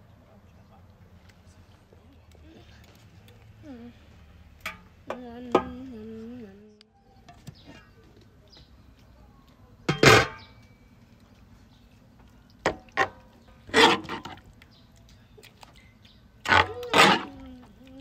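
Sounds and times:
metal ladle scraping a metal pan: 13.7 - 14.4.

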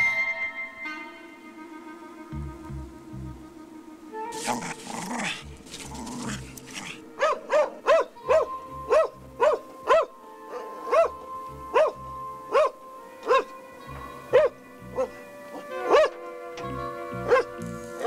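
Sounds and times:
background music held notes: 0.0 - 18.0
dog barking: 6.2 - 13.5, 14.3 - 16.2, 17.3 - 17.6.

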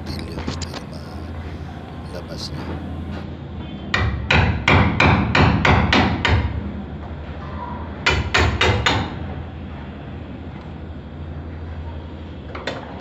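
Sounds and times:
hammer striking plastic pipe: 3.9 - 6.6, 8.1 - 9.2.

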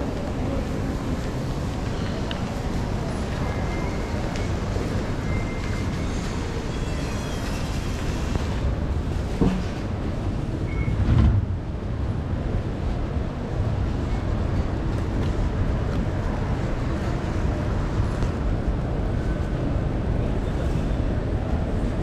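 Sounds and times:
station ambience low rumble: 0.0 - 22.0
thump: 9.4 - 9.8, 11.0 - 11.6
short beep: 10.7 - 11.0.

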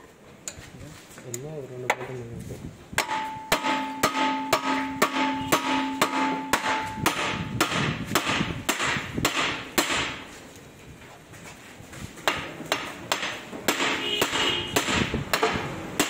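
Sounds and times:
hammer blows on steel: 2.9 - 10.3, 12.3 - 16.0.

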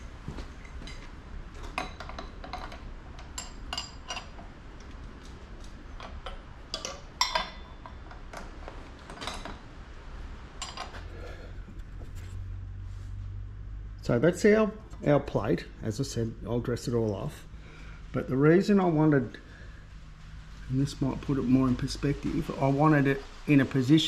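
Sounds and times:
metallic clinks of steel parts: 0.6 - 4.4.

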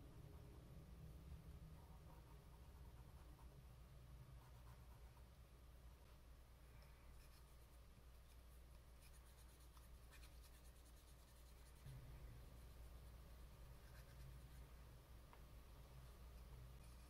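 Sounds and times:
cotton swab scratching: 7.2 - 14.8.

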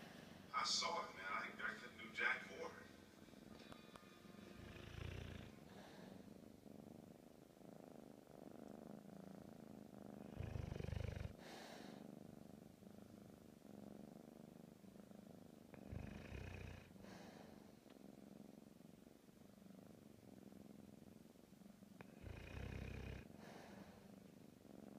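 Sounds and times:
kitten purring: 0.0 - 24.9
dog snoring: 4.5 - 18.6, 22.0 - 24.9.

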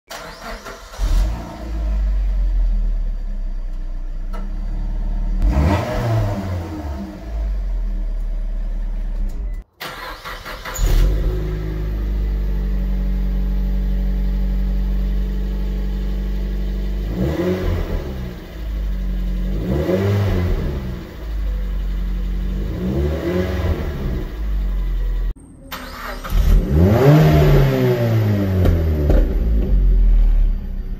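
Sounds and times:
car engine idling and revving: 0.1 - 30.9.

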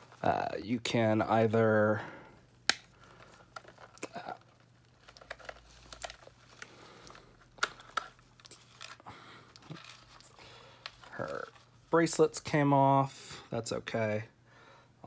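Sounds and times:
plastic rustling: 0.0 - 1.0, 2.9 - 12.4.

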